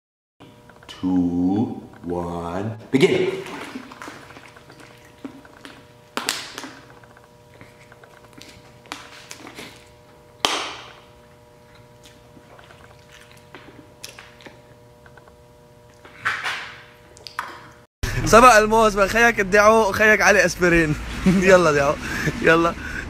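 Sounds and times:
man chewing and gulping: 3.4 - 16.2.

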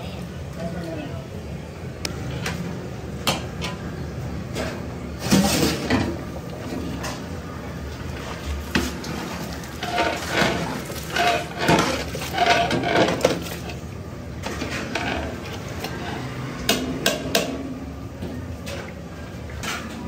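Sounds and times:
metal utensils clattering on pots: 8.6 - 13.8, 14.4 - 17.6.

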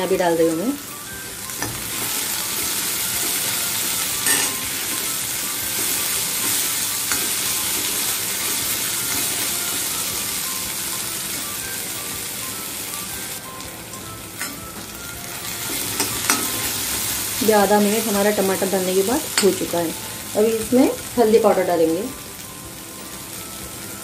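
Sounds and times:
vegetables sizzling in hot oil: 0.0 - 24.0
steel spoon knocking pan: 4.2 - 4.7, 15.9 - 16.6.

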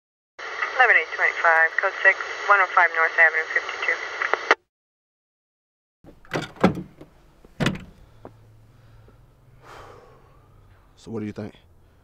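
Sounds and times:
heavy thumps: 6.1 - 8.4.

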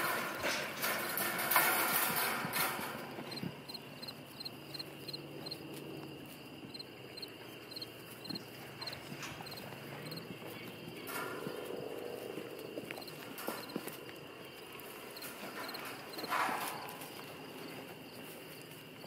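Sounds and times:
crickets chirping: 0.0 - 19.0.

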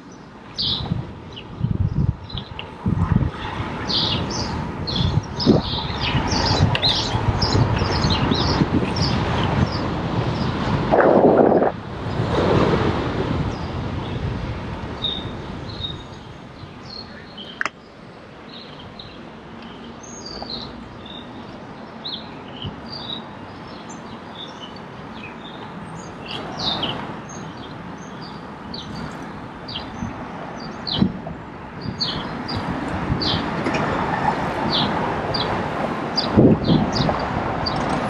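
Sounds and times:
steady rushing noise: 0.0 - 38.0
birds chirping and singing: 0.1 - 2.6, 3.9 - 10.6, 18.5 - 31.1.

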